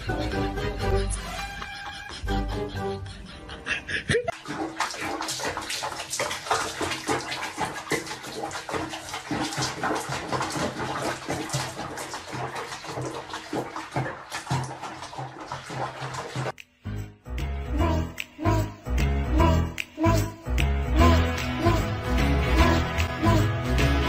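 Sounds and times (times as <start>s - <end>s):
water splashing in basin: 4.3s - 16.6s.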